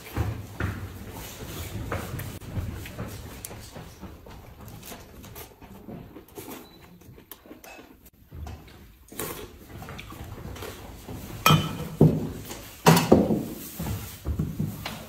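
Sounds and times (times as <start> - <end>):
dishes clinking: 11.4 - 12.0.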